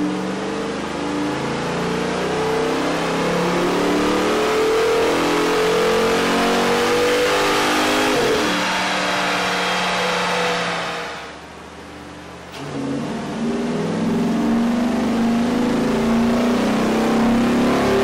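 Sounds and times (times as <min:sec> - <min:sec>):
car engine revving under load: 0:00.0 - 0:11.6, 0:12.4 - 0:18.0.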